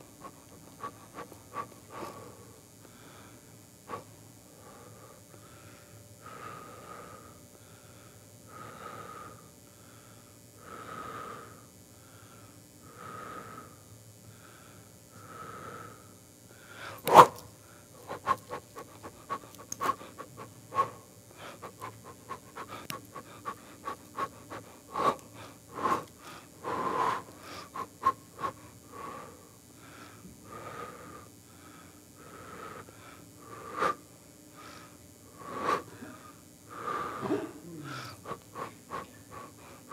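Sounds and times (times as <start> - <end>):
person breathing heavily: 0.0 - 17.1, 17.7 - 39.9
sharp loud click: 17.0 - 17.4.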